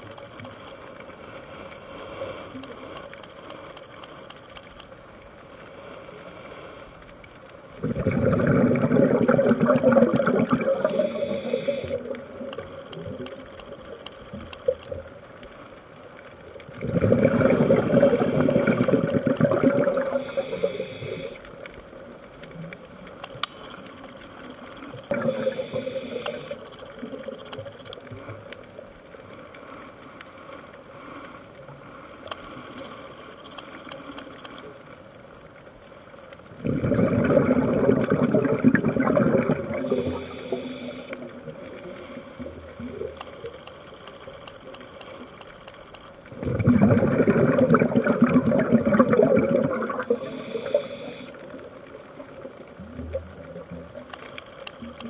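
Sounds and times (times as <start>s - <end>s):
underwater background: 0.0s - 55.0s
exhaled bubbles gurgling underwater: 7.5s - 29.3s, 36.0s - 55.0s
regulator inhalation hiss: 10.7s - 12.9s, 17.5s - 19.1s, 20.0s - 21.6s, 25.2s - 27.0s, 39.6s - 42.6s, 50.0s - 51.6s.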